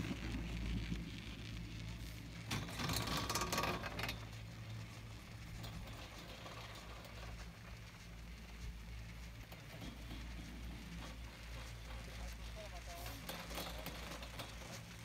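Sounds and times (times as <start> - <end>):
rustling crackling burst: 0.0 - 5.4
chairlift low hum: 0.0 - 15.0
faint wind hiss: 0.0 - 15.0.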